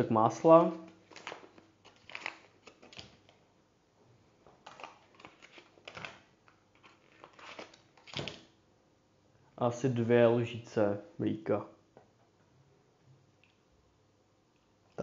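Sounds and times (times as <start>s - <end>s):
butter wrapper crinkling: 1.0s - 3.4s, 4.6s - 8.5s.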